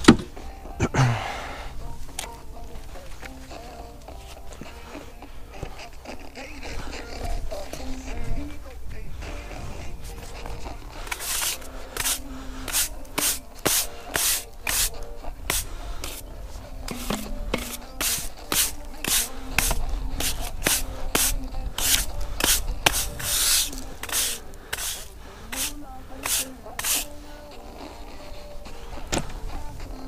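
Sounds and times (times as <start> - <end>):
push broom sweeping sand on concrete: 10.9 - 27.5.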